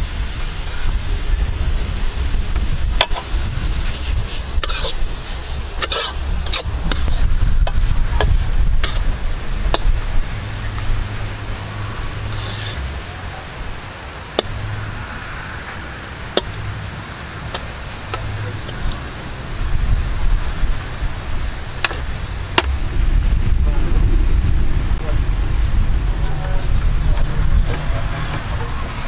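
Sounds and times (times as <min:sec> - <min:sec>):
steady low rumble: 0:00.0 - 0:29.0
metal spatula scraping wok: 0:03.0 - 0:13.1.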